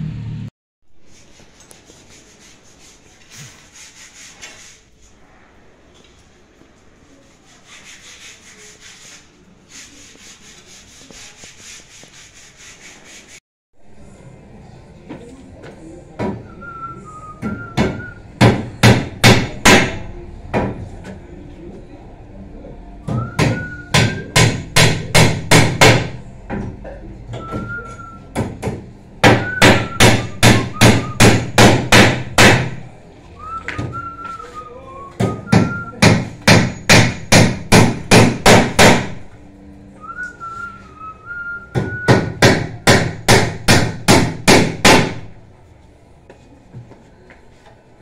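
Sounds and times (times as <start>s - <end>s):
person whistling: 16.4s - 18.2s, 23.0s - 24.4s, 27.4s - 28.3s, 29.4s - 31.2s, 33.4s - 36.0s, 40.0s - 42.3s.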